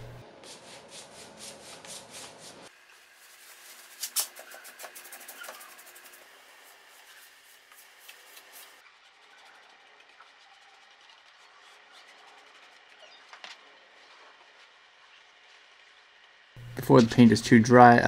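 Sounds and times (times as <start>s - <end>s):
paintbrush strokes on wood: 0.0s - 9.6s.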